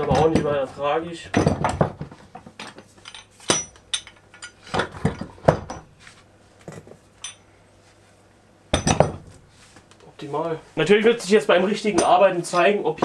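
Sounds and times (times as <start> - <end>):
metal clamps clanking on wood: 1.3 - 5.9.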